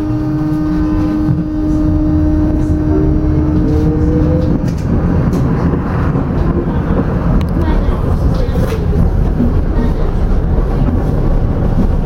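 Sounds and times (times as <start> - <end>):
electrical hum: 0.0 - 12.0
tram motors whining: 0.0 - 12.0
tram running gear rumble: 0.0 - 12.0.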